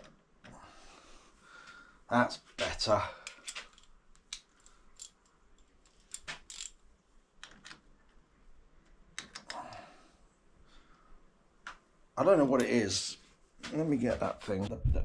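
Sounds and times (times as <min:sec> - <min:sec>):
metallic clicks of small tools: 0:03.2 - 0:06.8.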